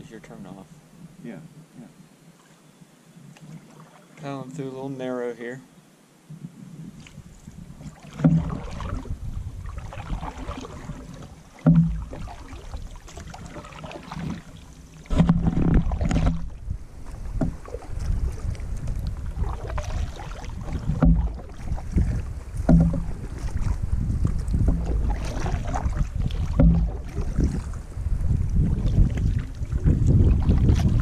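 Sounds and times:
water swirling along hull: 3.3 - 4.3, 6.6 - 31.0
paddle strokes in water: 3.3 - 4.4, 6.4 - 31.0
wind rumble on microphone: 6.2 - 31.0.

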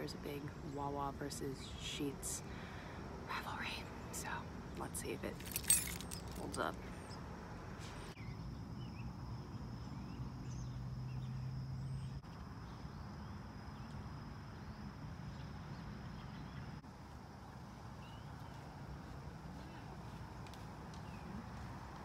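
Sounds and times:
insects droning: 8.2 - 22.0.

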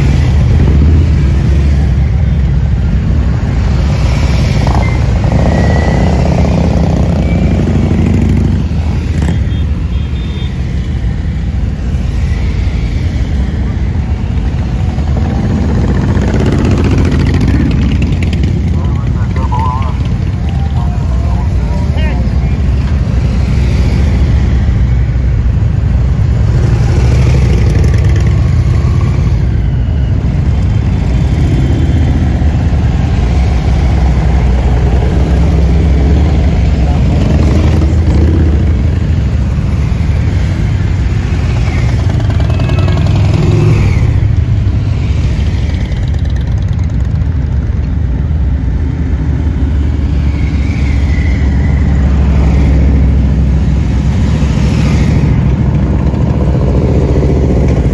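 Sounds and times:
motorcycles passing at low speed: 0.0 - 57.9.

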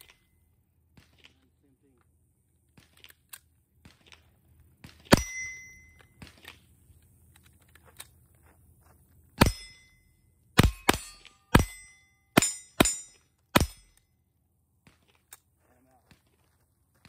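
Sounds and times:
rifle handling clicks: 2.9 - 4.3
metallic ding of steel target: 5.2 - 6.0, 9.4 - 14.0
rifle gunshots: 12.4 - 13.9.

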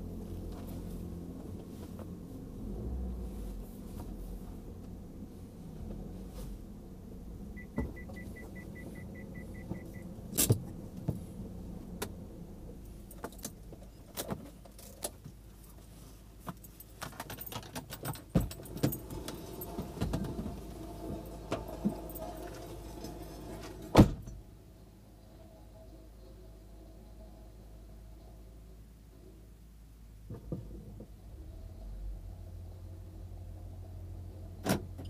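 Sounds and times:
car engine rumble: 0.0 - 35.0
short even beeps: 7.6 - 10.0.

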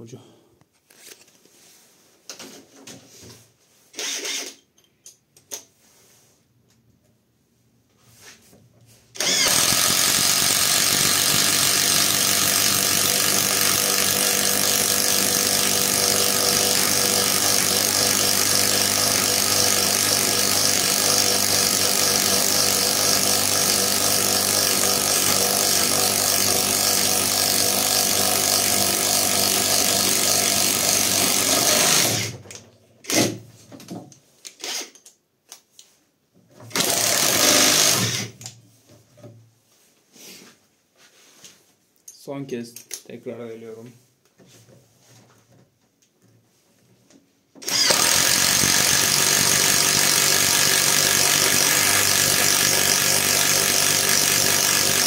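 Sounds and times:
impact driver boring into wood: 4.0 - 4.6, 9.2 - 32.4, 33.1 - 33.4, 36.7 - 38.4, 47.6 - 55.0.

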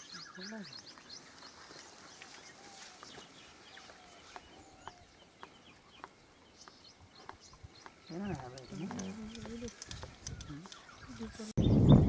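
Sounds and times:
bird calls and chirps: 0.0 - 12.0
light sharp clicks: 8.5 - 10.9.

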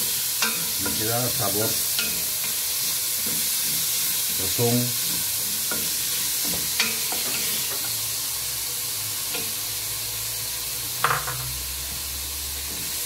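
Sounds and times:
onion and garlic sizzling in oil: 0.0 - 13.0.

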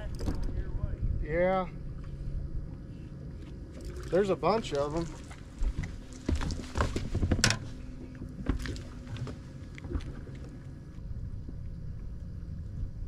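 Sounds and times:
low rumble: 0.0 - 13.0
fish flopping: 4.9 - 11.0.

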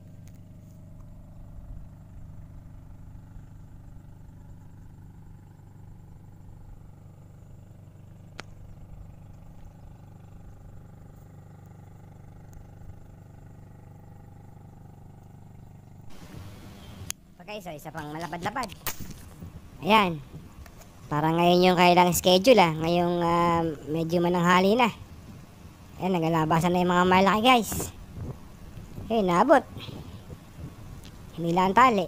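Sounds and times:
engine humming: 0.0 - 32.0
sharp click: 18.2 - 19.4.

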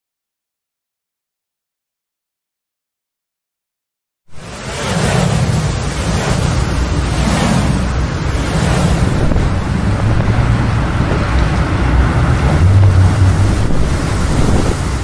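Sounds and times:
rushing wind with low rumble: 4.3 - 15.0.

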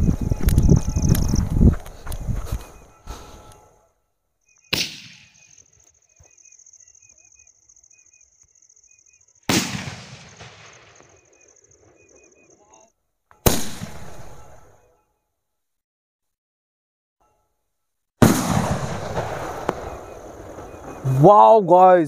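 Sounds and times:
firework launch bang: 4.7 - 5.4, 9.5 - 11.2, 13.5 - 14.4, 18.2 - 20.8.

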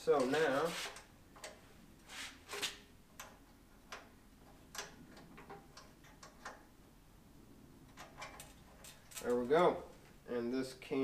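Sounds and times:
light metal clicks and taps: 3.1 - 6.7.

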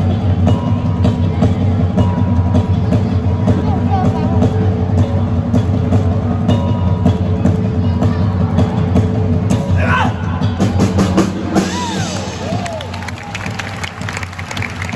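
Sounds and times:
live band music: 0.0 - 14.9
audience calling out: 11.5 - 14.9.

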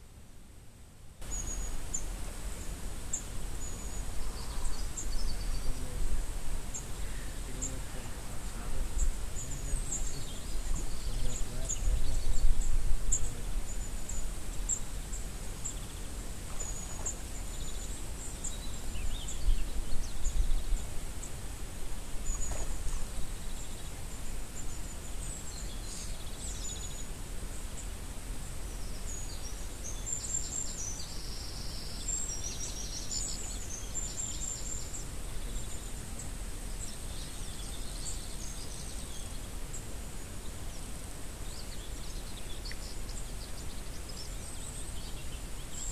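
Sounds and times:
small birds chirping: 1.2 - 21.4, 22.0 - 45.9
wind rumble on microphone: 1.2 - 33.7.

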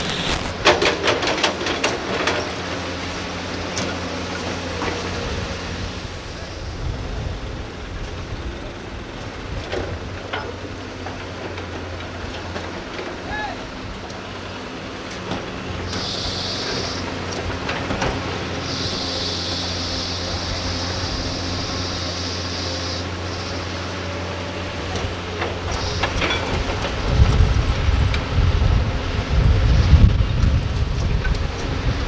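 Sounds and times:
excavator diesel engines: 0.0 - 32.0
hydraulic hiss: 15.9 - 17.1, 18.6 - 23.7, 25.7 - 26.2
wind buffeting microphone: 26.6 - 32.0.

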